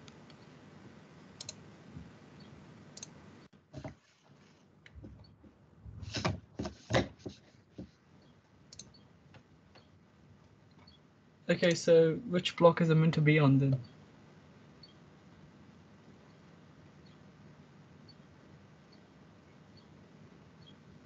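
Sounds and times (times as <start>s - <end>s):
computer mouse and keyboard clicks: 8.7s - 9.0s.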